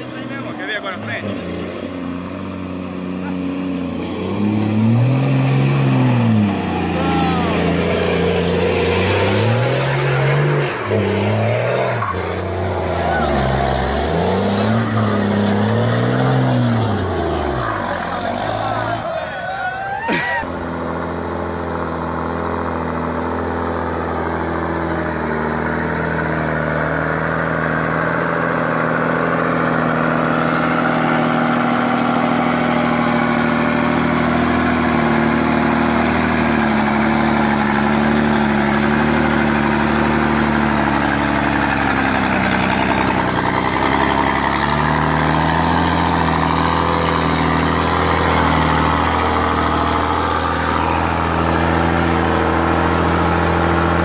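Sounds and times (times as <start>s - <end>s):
truck diesel engine running: 0.0s - 54.0s.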